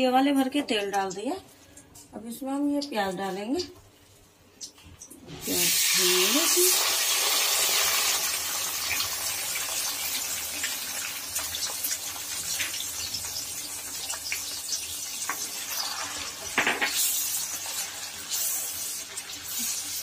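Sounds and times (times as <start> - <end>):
paste sizzling in hot oil: 5.4 - 20.0.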